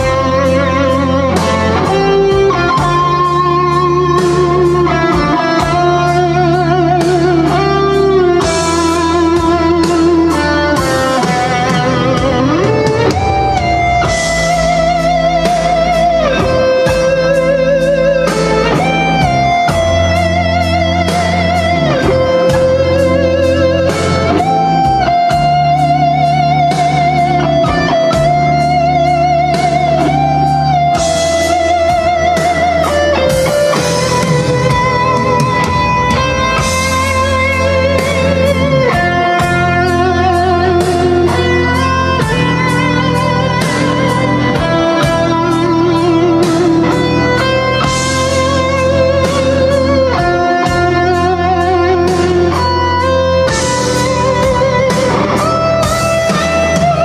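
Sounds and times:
drum beat: 0.0 - 28.8, 29.7 - 57.0
bass line: 0.0 - 57.0
electric guitar lead with vibrato: 0.0 - 57.0.

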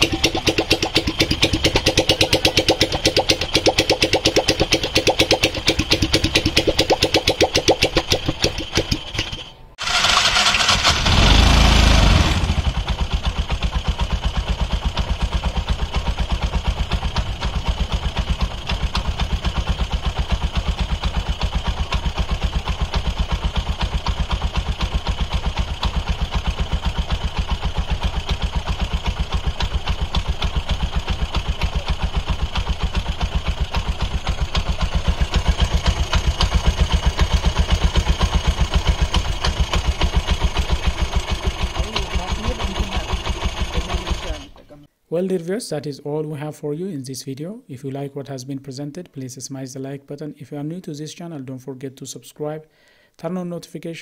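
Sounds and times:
engine revving: 0.0 - 44.6
single-cylinder engine idling: 0.0 - 44.6.

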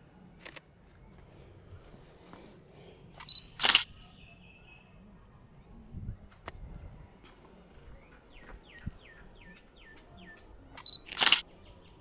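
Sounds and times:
camera shutter firing: 3.2 - 3.9, 10.8 - 11.4.

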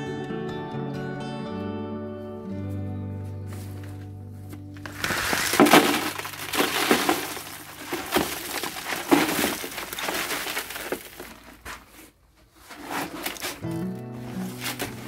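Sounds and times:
gravel poured into plastic can: 4.8 - 11.8, 12.9 - 15.0.

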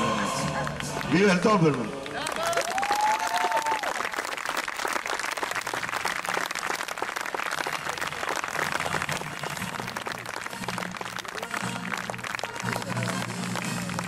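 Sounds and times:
crowd applauding: 0.4 - 14.0
faint music: 7.3 - 14.0.

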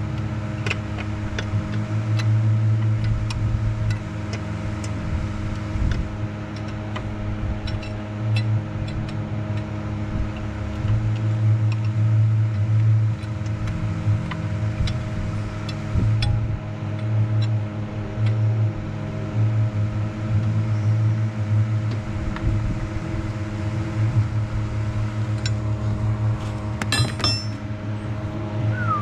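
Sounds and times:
machine hum: 0.0 - 29.0
hand tools clicking and tapping: 26.8 - 27.6.

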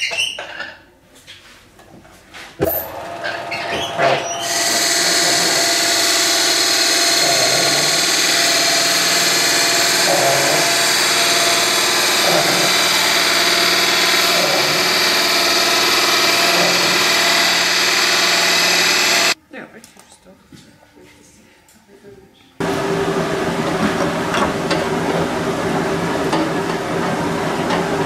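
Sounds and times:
wood lathe running: 2.8 - 19.4, 22.6 - 28.0
gouge cutting wood: 3.2 - 19.4.

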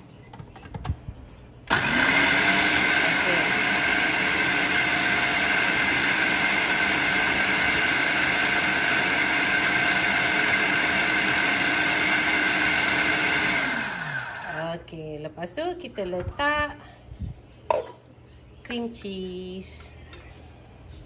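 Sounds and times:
food processor whining: 1.7 - 14.6.

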